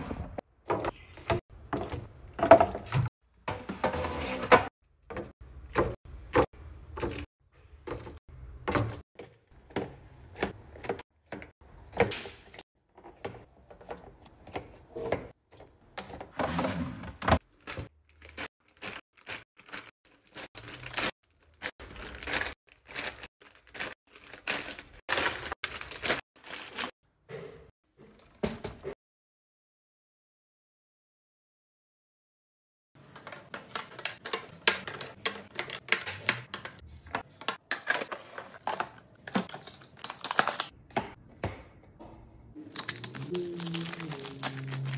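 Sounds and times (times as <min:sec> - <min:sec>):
plastic snack bags rustling: 0:17.4 - 0:26.9, 0:38.6 - 0:40.7, 0:42.6 - 0:44.9.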